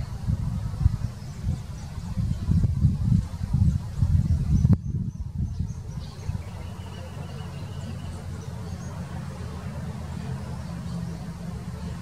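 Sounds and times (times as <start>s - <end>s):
high-pitched bird calls: 5.5s - 9.0s.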